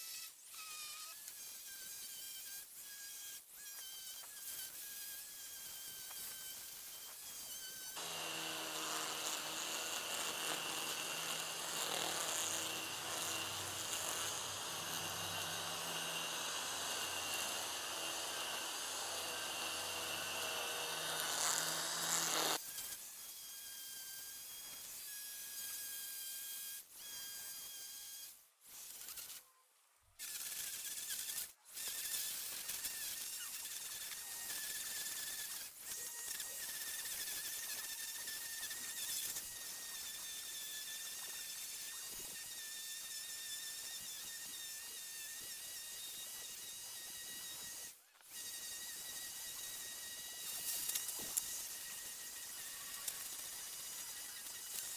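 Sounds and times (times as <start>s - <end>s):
string trimmer cutting grass: 8.0s - 22.6s.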